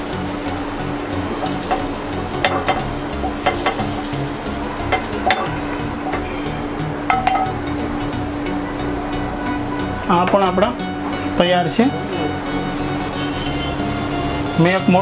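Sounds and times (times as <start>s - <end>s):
food sizzling in pan: 0.0s - 14.5s
spatula clicking on pan and bowl: 1.4s - 4.1s, 4.9s - 6.2s.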